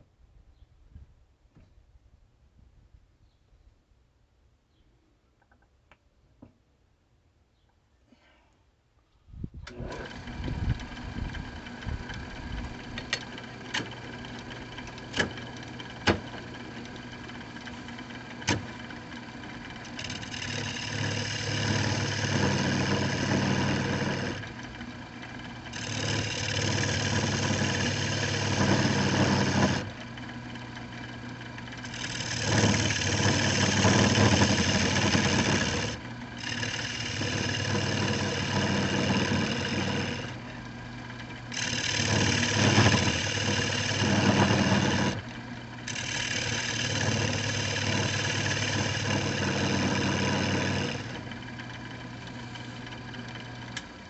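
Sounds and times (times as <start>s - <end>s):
lathe motor humming: 9.7s - 54.0s
gouge scraping wood: 14.2s - 24.6s, 25.6s - 29.9s, 31.8s - 40.5s, 41.5s - 45.3s, 45.9s - 53.6s.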